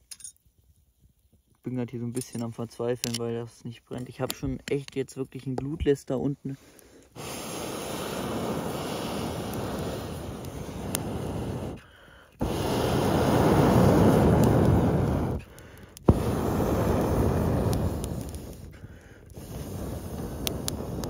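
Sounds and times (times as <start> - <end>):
fire crackling: 0.4 - 21.0
breath blowing through metal pipe: 6.6 - 21.0.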